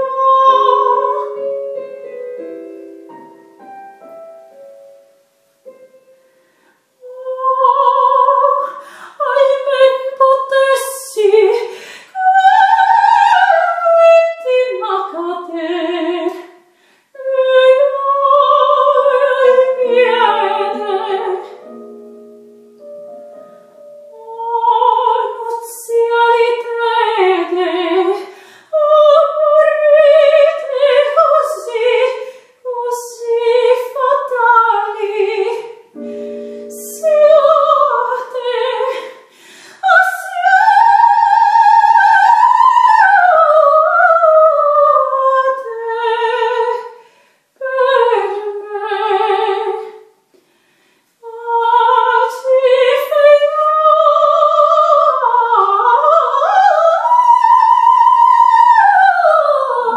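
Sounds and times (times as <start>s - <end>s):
soprano singing opera: 0.0s - 5.0s, 7.0s - 47.0s, 47.6s - 50.0s, 51.2s - 59.9s
piano chords: 0.0s - 8.6s, 18.3s - 26.7s, 33.6s - 43.7s.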